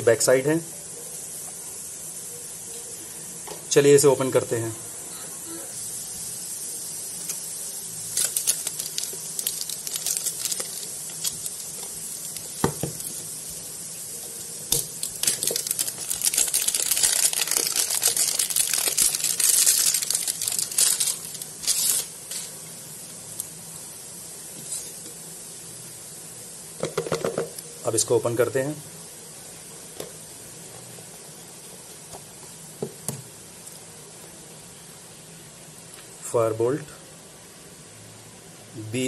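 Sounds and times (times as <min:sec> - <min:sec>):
plastic shrink-wrap crinkling: 0:08.1 - 0:22.6.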